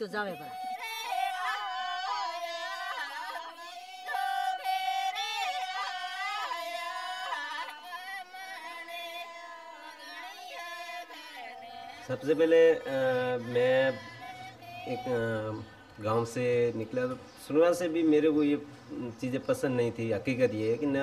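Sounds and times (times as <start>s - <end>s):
woman singing slow melody: 0.0s - 12.2s, 12.8s - 15.8s.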